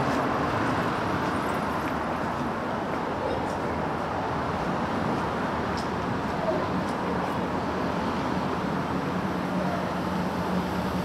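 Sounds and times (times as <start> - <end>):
road traffic noise: 0.0 - 11.0
faint voices: 6.2 - 7.6, 9.5 - 10.2.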